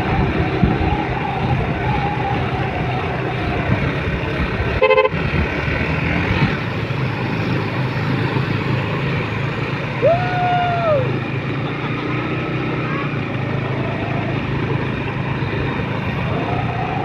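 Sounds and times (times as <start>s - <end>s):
wind rush: 0.0s - 6.9s
motorcycle engine running: 0.0s - 17.0s
short horn beep: 4.8s - 5.2s.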